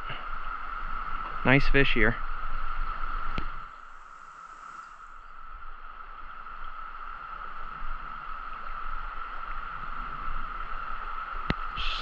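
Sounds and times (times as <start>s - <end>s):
cicada chorus drone: 0.0s - 12.0s.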